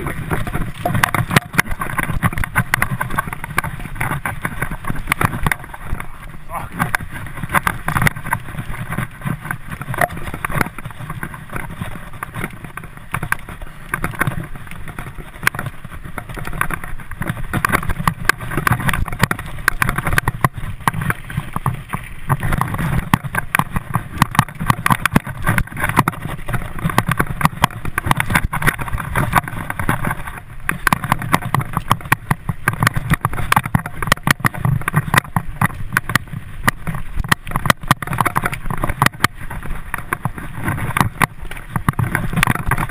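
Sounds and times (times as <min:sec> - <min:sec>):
bike rattling and knocking: 0:00.0 - 0:42.9
bike tyre rumble on dirt: 0:00.0 - 0:42.9.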